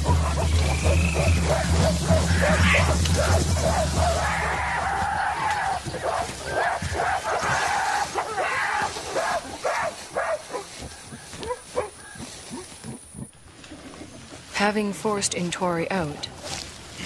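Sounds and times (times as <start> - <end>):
gorillas giving bark-like calls: 0.0 - 13.4.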